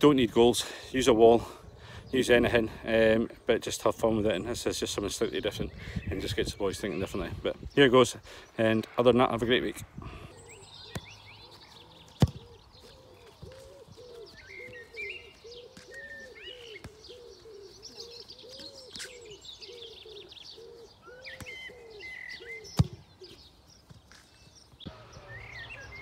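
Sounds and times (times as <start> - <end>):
small birds chirping: 0.0 - 26.0
low repeating bird call: 8.7 - 23.6, 24.8 - 26.0
football kicked with thud: 12.1 - 12.5, 22.7 - 23.0.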